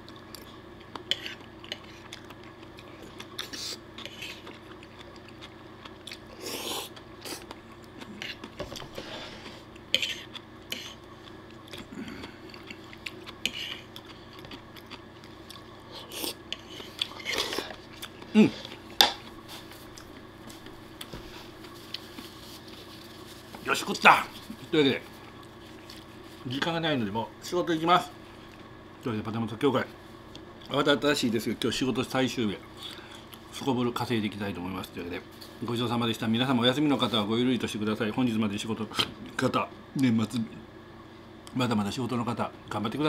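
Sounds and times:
chewing: 0:00.0 - 0:23.6, 0:25.2 - 0:26.4.

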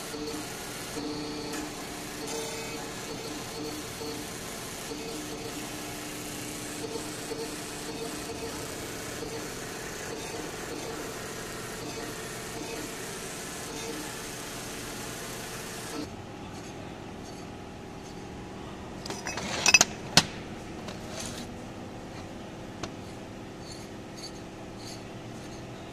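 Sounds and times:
workshop machine humming: 0:00.0 - 0:25.9
metal clanks and knocks: 0:19.0 - 0:21.5.

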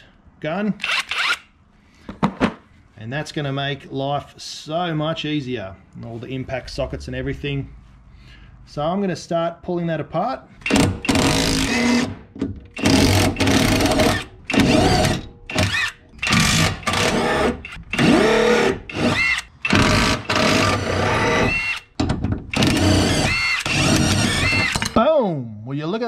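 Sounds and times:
impact wrench winding up and down: 0:00.8 - 0:01.5, 0:10.6 - 0:12.1, 0:12.7 - 0:25.0.

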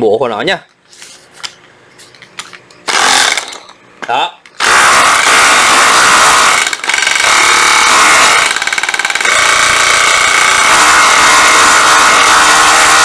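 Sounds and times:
rotary hammer motor whine: 0:02.9 - 0:03.7, 0:04.6 - 0:13.0.

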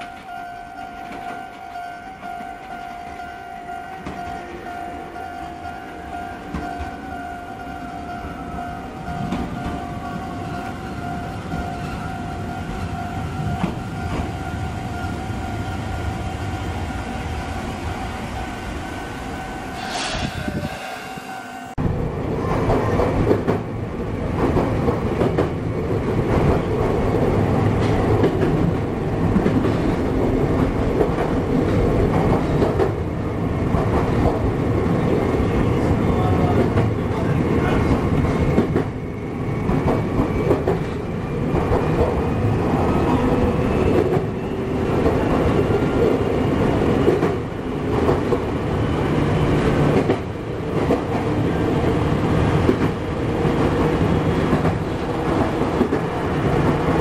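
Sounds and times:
rail-joint clicks: 0:00.0 - 0:03.2, 0:04.0 - 0:04.5, 0:06.5 - 0:08.2, 0:09.0 - 0:14.6, 0:24.4 - 0:25.6, 0:39.6 - 0:42.2, 0:43.8 - 0:46.2, 0:47.0 - 0:48.5, 0:49.6 - 0:51.3
train wheels rumbling on rails: 0:00.0 - 0:57.0.

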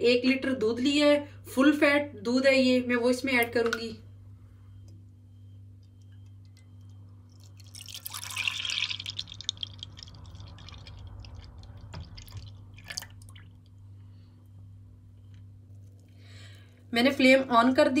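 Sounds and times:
milk dripping: 0:06.0 - 0:13.8
milk pouring into a pan: 0:07.4 - 0:13.5.

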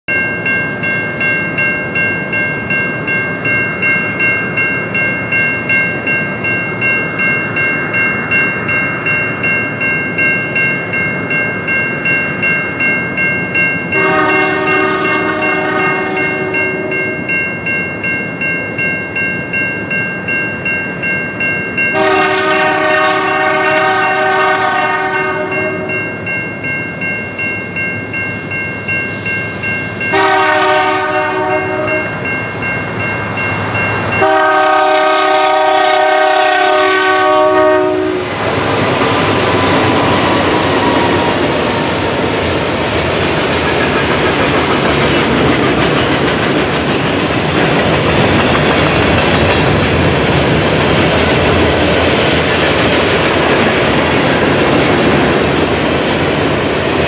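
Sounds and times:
crossing warning bell ringing: 0:00.1 - 0:56.7
train horn blasts: 0:14.0 - 0:17.0, 0:21.9 - 0:26.0, 0:30.1 - 0:32.2, 0:34.2 - 0:38.3.

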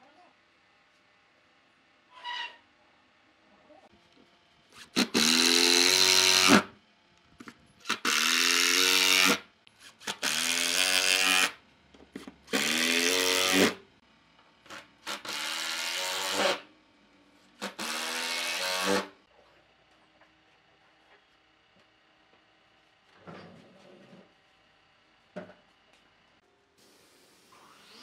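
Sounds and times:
impact driver driving screws into wood: 0:04.8 - 0:06.7, 0:07.8 - 0:11.6, 0:12.5 - 0:13.8, 0:17.6 - 0:19.1.

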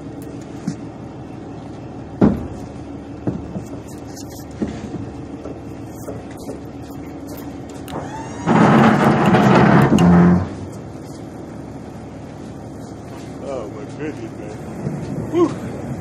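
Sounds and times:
steady low hum: 0:00.0 - 0:16.0
items knocking on truck bed: 0:02.2 - 0:03.8.

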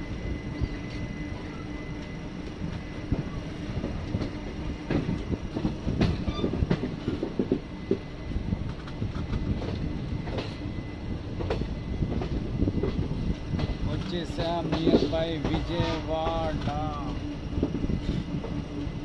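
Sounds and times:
train rumbling: 0:00.0 - 0:19.0
wheels clattering on track: 0:11.4 - 0:17.0.

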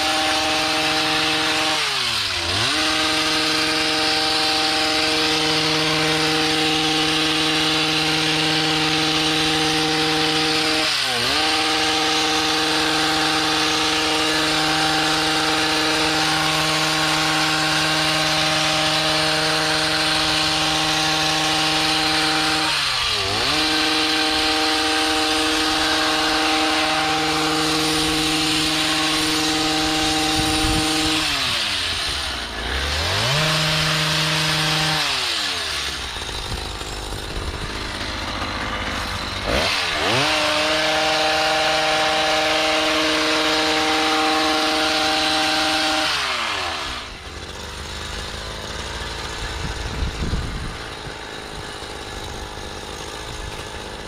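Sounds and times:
hedge trimmer engine revving: 0:00.0 - 0:54.0.

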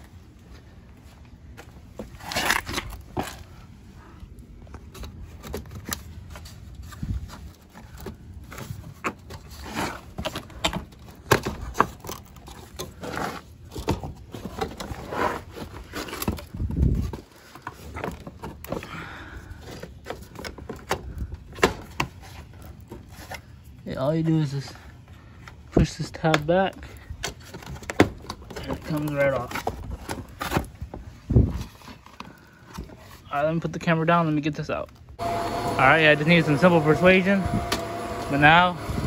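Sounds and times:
plastic bumper parts creaking: 0:04.8 - 0:23.6, 0:25.4 - 0:33.3.

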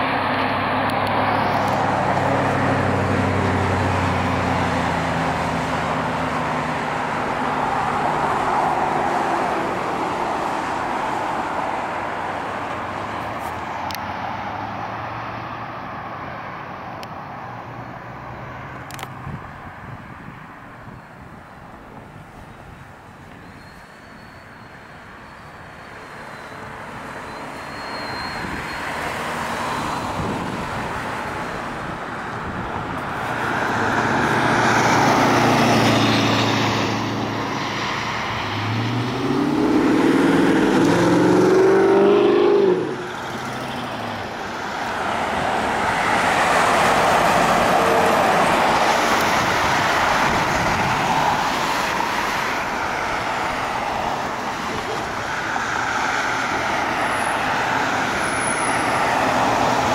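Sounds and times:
cars passing by: 0:00.0 - 0:59.9
vehicle engine accelerating: 0:32.6 - 0:59.9.

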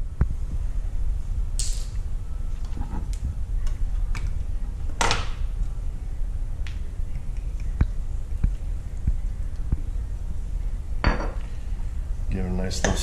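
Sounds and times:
steady low rumble: 0:00.0 - 0:12.8.

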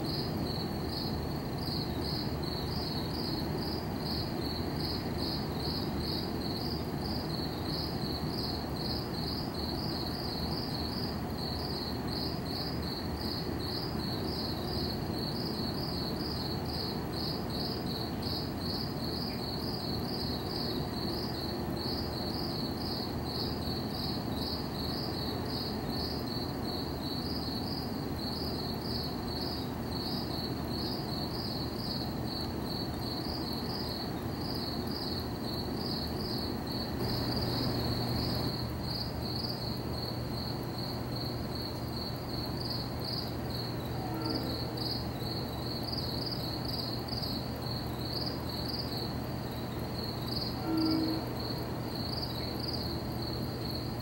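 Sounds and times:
crickets chirping: 0:00.0 - 0:54.0
steady low hum: 0:28.6 - 0:46.8.

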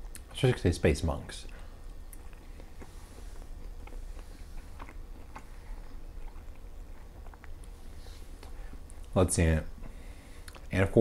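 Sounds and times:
wet mouth clicks: 0:00.0 - 0:00.3, 0:01.5 - 0:07.8, 0:10.4 - 0:10.7
man chewing food: 0:00.0 - 0:00.4, 0:01.4 - 0:10.7
low steady hum: 0:00.0 - 0:11.0.

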